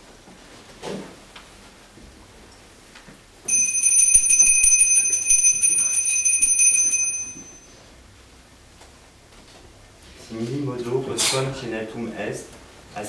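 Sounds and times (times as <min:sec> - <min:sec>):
small bell ringing rapidly: 0:03.5 - 0:07.7.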